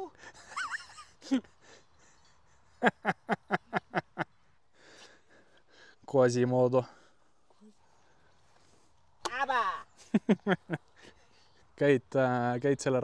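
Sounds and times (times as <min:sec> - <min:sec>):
person laughing: 0:00.2 - 0:01.6, 0:02.8 - 0:04.3.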